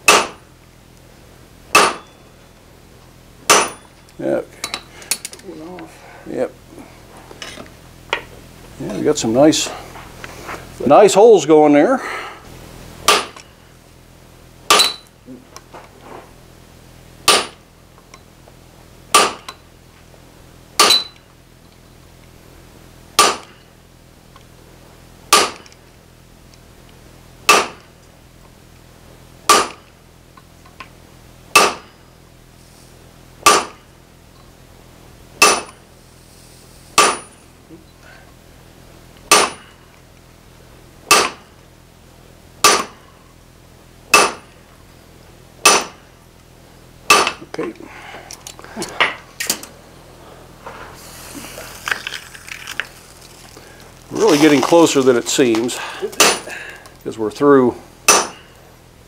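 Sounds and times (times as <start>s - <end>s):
hammer striking metal punch: 0.0s - 0.4s, 1.7s - 2.2s, 3.5s - 4.0s, 13.1s - 13.5s, 14.7s - 15.1s, 17.2s - 17.6s, 19.1s - 19.6s, 20.8s - 21.2s, 23.2s - 23.6s, 25.3s - 25.7s, 27.5s - 27.9s, 29.5s - 29.9s, 31.5s - 32.0s, 33.4s - 33.8s, 35.4s - 35.8s, 37.0s - 37.4s, 39.3s - 39.8s, 41.1s - 41.5s, 42.6s - 43.0s, 44.1s - 44.6s, 45.6s - 46.0s, 47.1s - 47.4s, 56.1s - 56.5s, 58.1s - 58.5s.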